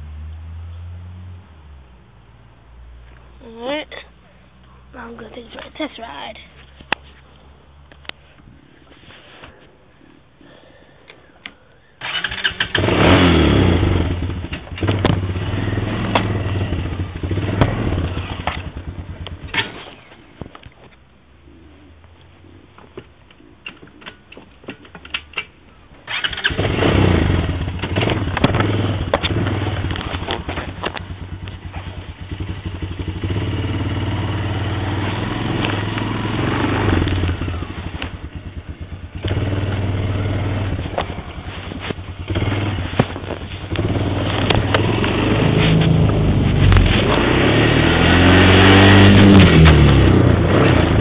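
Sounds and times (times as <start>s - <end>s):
atv engine revving: 12.0s - 20.2s, 26.0s - 51.0s.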